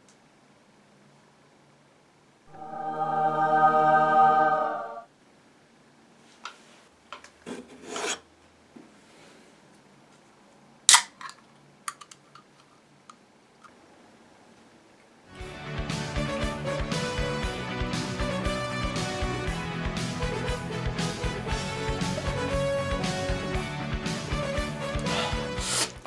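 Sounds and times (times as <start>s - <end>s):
steady pitched tone: 2.5s - 5.1s.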